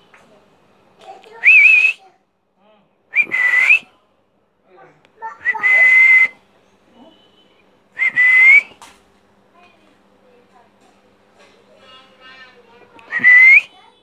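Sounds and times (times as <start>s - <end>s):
short breathy whistles: 1.4s - 2.0s, 3.2s - 3.9s, 5.5s - 6.4s, 8.0s - 8.8s, 13.0s - 13.8s.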